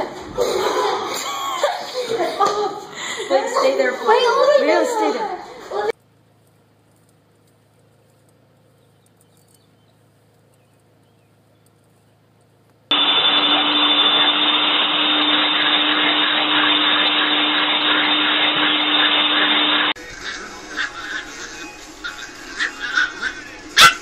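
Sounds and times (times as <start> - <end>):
vacuum cleaner running: 12.9 - 24.0.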